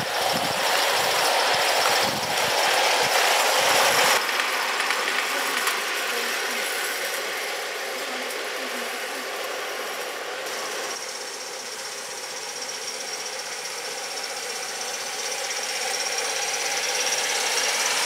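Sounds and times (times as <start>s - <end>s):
model steam locomotive clattering: 0.0s - 18.0s.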